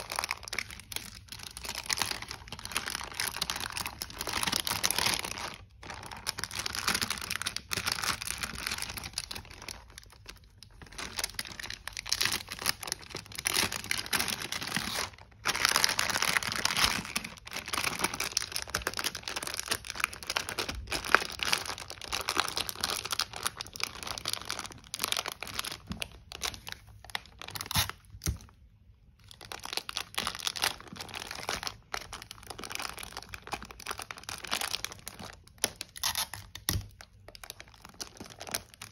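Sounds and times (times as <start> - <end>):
plastic bag crinkling: 0.0 - 38.9.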